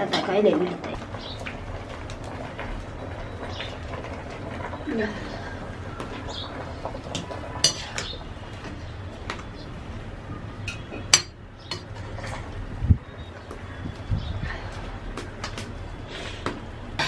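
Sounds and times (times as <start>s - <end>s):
ladle clinking and scraping wok: 7.1s - 8.2s.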